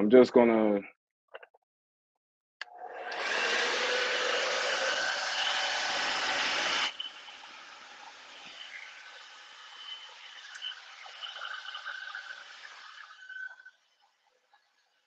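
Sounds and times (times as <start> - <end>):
blow dryer rushing air: 2.9 - 7.0.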